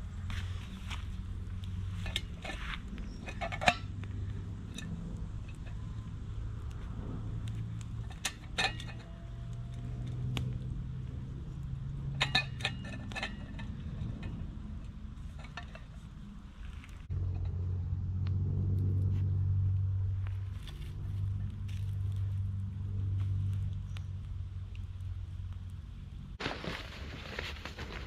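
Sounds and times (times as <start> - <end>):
low rumble: 0.0 - 27.9
metal cookware clinking: 2.0 - 6.0, 8.0 - 9.4, 12.0 - 16.0.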